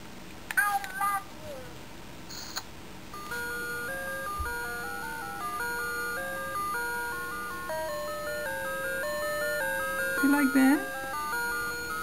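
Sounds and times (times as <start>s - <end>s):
toy beeping melody: 3.2s - 12.0s.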